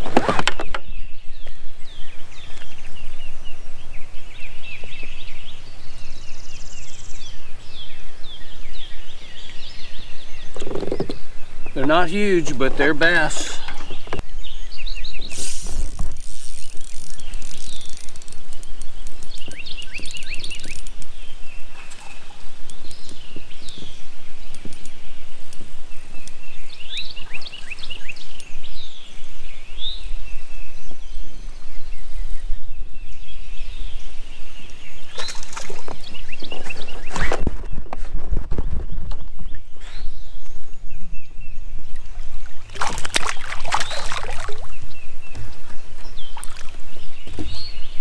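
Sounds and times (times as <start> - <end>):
birds chirping: 0.4 - 48.0.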